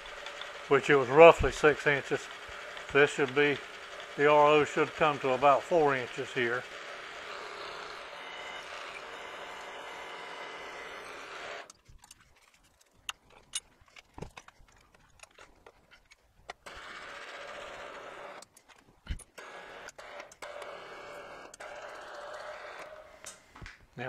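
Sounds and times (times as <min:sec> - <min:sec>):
milling machine humming: 0:00.0 - 0:11.7, 0:19.2 - 0:23.4.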